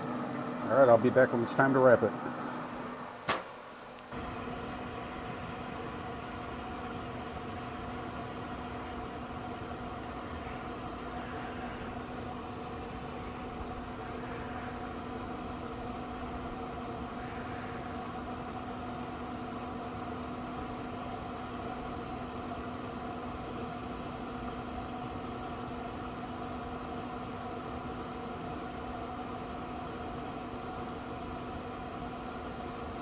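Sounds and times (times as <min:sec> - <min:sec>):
grill fan humming: 0:00.0 - 0:33.0.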